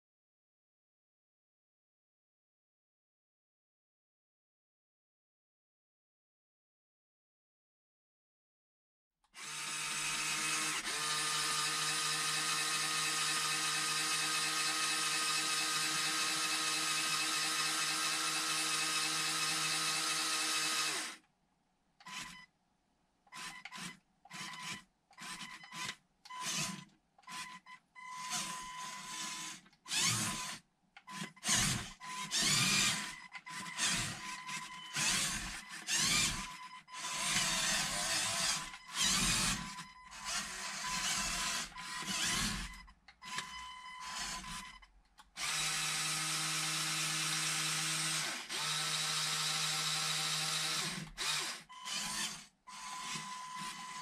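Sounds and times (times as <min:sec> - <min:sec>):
toy electric motors and gears running: 0:09.4 - 0:21.2, 0:28.1 - 0:44.8, 0:45.4 - 0:54.0.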